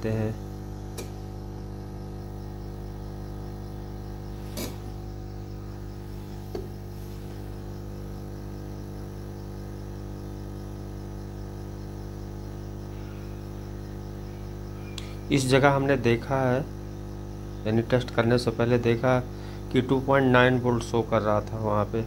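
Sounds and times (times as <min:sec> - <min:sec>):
hot-air gun humming: 0:00.0 - 0:08.8, 0:18.2 - 0:21.4.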